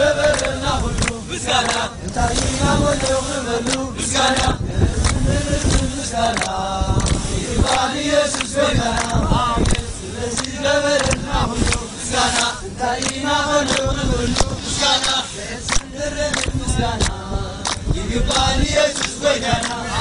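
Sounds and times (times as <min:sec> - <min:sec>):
group chanting call-and-response: 0:00.0 - 0:20.0
hand claps: 0:00.2 - 0:19.9.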